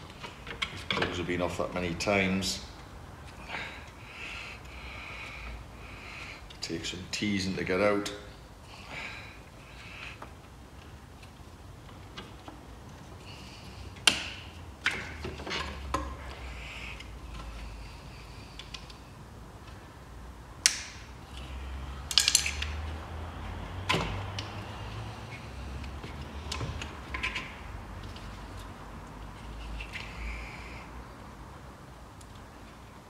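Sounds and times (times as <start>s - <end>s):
plastic connector clicks and snaps: 20.6s - 21.0s.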